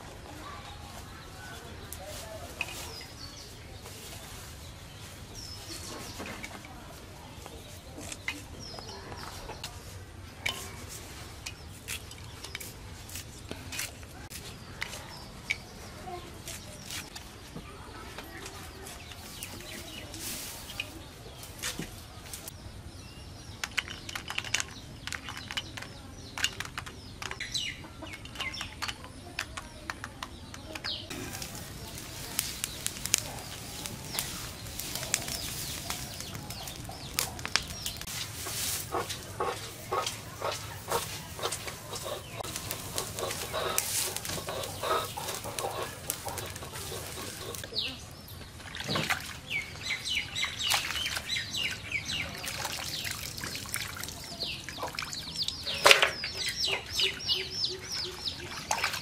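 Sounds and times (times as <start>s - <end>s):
birds calling: 17.9s - 59.0s
chilies dropping into clay bowls: 23.6s - 27.5s, 28.1s - 47.8s
chickens clucking: 27.4s - 29.2s, 30.9s - 48.2s, 50.4s - 59.0s
dry stalks crackling in fire: 31.1s - 48.0s.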